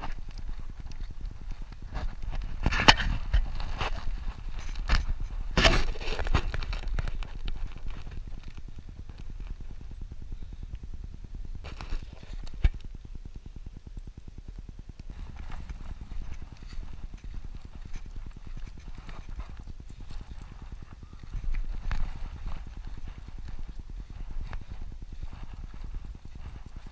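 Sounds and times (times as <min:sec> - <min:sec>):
footsteps on dirt trail: 0:15.1 - 0:26.9.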